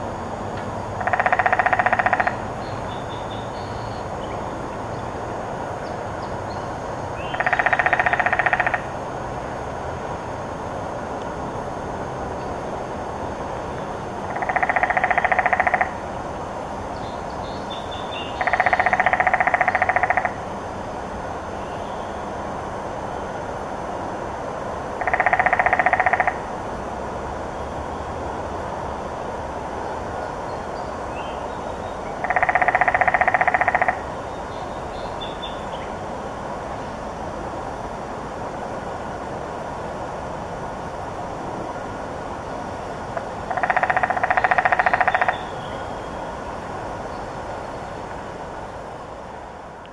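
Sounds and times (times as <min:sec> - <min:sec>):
woodpecker drumming: 0:01.0 - 0:02.4, 0:07.2 - 0:08.9, 0:14.3 - 0:16.0, 0:18.4 - 0:20.4, 0:25.0 - 0:26.4, 0:32.2 - 0:34.0, 0:43.5 - 0:45.6.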